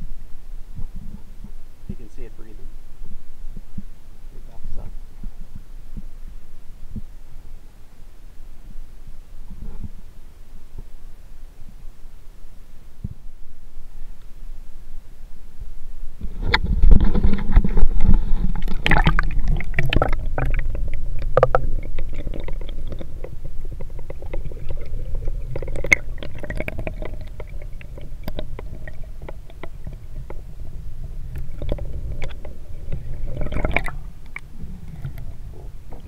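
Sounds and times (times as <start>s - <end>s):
muffled underwater rumble and gurgling: 0.0s - 36.0s
sharp underwater clicks and crackles: 16.2s - 36.0s.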